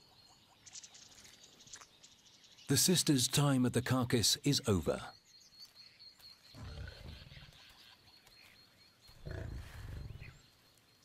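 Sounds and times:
lions growling: 6.5s - 7.5s, 9.2s - 10.4s.

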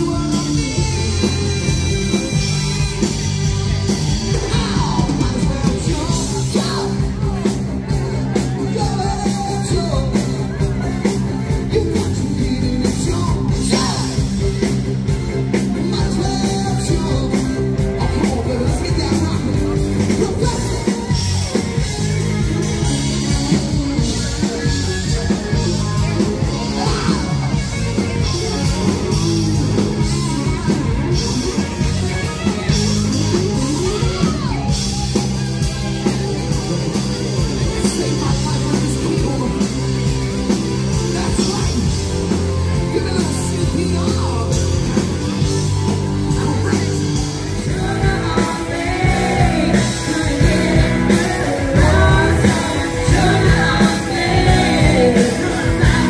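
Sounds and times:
live rock band playing: 0.0s - 56.0s
person singing: 46.3s - 56.0s.

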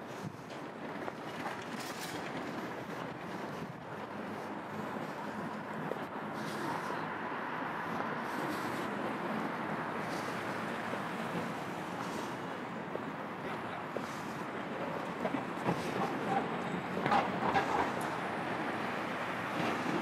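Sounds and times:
traffic hum: 0.0s - 20.0s.

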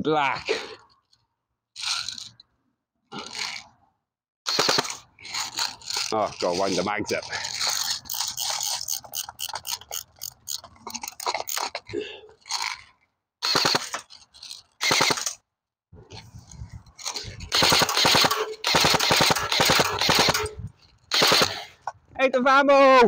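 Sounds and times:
airsoft guns firing full auto: 4.5s - 5.5s, 13.4s - 14.0s, 14.8s - 15.4s, 17.5s - 20.5s, 21.1s - 21.7s
magazine winding ratchet clicks: 4.5s - 6.1s, 7.4s - 11.8s, 12.4s - 15.4s, 17.4s - 21.6s.

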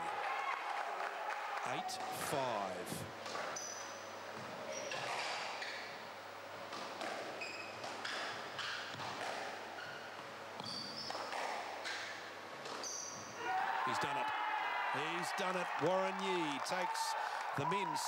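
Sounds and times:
squash ball hitting rackets and walls: 3.2s - 6.0s, 6.7s - 13.4s
shoes squeaking on wooden floor: 7.2s - 13.4s.

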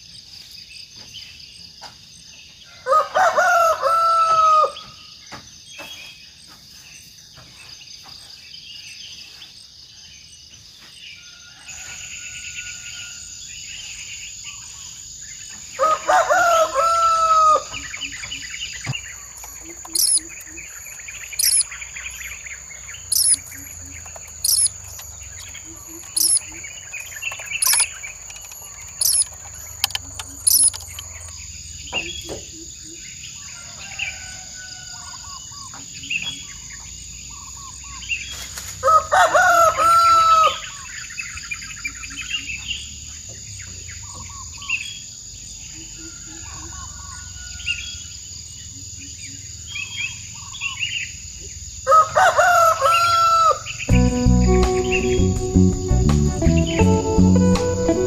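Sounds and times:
insects droning: 0.0s - 58.0s
rooster crowing: 2.8s - 4.9s, 11.2s - 13.3s, 15.7s - 17.9s, 19.2s - 20.3s, 21.4s - 21.7s, 23.1s - 26.6s, 33.5s - 35.3s, 38.8s - 40.8s, 51.9s - 53.8s
bird chirping: 17.7s - 33.4s.

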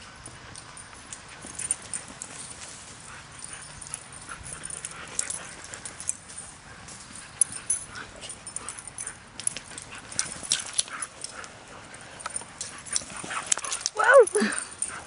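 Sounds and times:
paws scuffling in sand: 9.5s - 15.0s.

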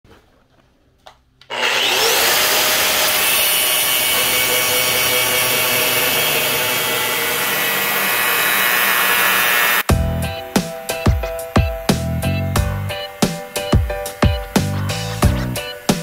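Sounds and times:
grinder cutting steel: 1.5s - 9.9s, 11.8s - 16.0s
angle grinder whine: 1.5s - 16.0s.

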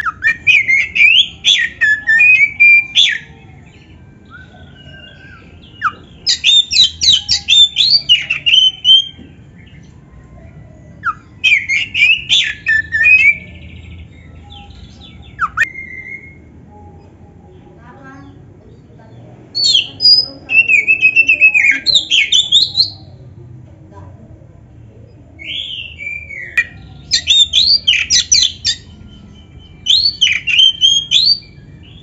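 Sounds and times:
songbird whistling and chattering: 0.0s - 9.9s, 10.9s - 17.0s, 19.6s - 23.1s, 25.4s - 32.0s.

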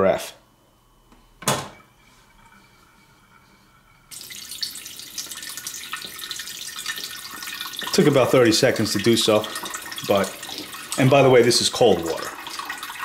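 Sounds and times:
water pouring into carafe: 4.1s - 13.0s.

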